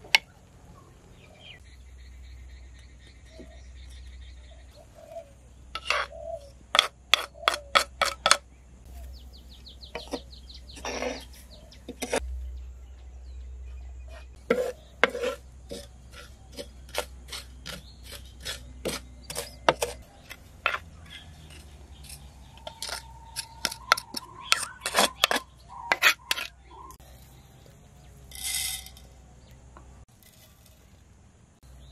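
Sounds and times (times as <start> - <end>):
wooden spoon scraping a pan: 5.8 - 8.4, 10.0 - 12.2, 14.1 - 26.6.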